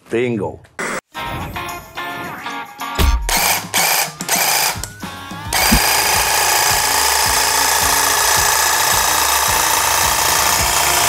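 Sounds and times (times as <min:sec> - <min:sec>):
hedge trimmer buzzing: 0:05.6 - 0:11.0.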